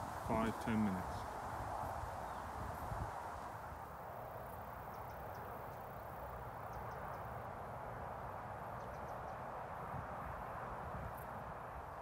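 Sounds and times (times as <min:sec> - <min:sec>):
rushing water hiss: 0:00.0 - 0:04.7.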